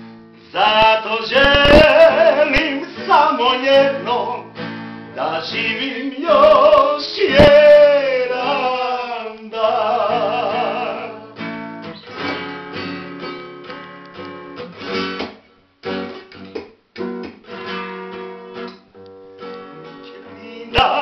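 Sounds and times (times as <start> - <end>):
acoustic classical guitar: 0.0 - 21.0
man singing with vibrato: 0.4 - 11.4, 20.2 - 21.0.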